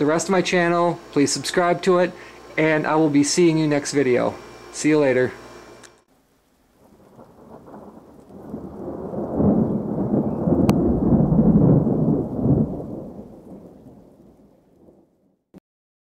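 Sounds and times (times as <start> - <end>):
deep rumble: 7.2 - 13.5.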